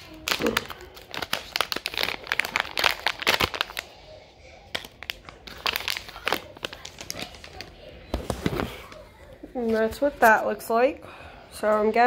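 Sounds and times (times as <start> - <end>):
packaging crinkling and tearing: 0.0 - 4.1, 4.7 - 9.0.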